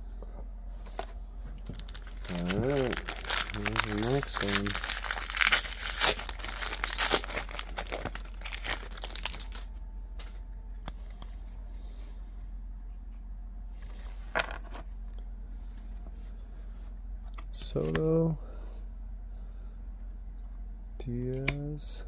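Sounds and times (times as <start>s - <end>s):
plastic wrapper tearing and crinkling: 1.7s - 9.7s.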